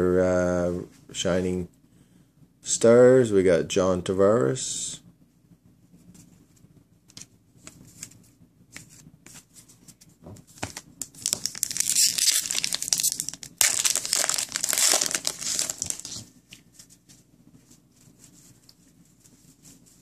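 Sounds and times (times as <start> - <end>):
foil wrapper crinkling: 11.0 - 16.3.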